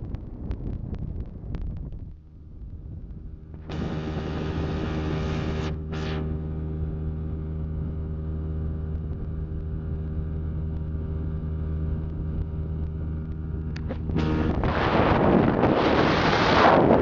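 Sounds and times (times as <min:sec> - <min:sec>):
wind on microphone: 0:00.0 - 0:05.7, 0:13.8 - 0:17.0.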